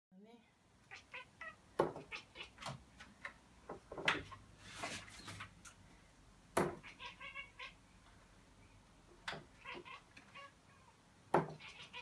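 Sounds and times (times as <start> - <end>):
cat chattering chirps: 0.9 - 2.6, 6.8 - 7.8, 9.6 - 11.0, 11.6 - 12.0
sharp knocks and clicks: 1.8 - 4.3.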